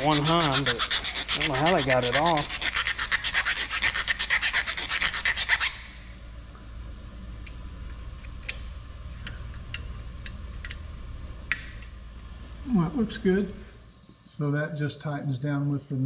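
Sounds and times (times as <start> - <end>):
hand file rasping metal: 0.0 - 5.8.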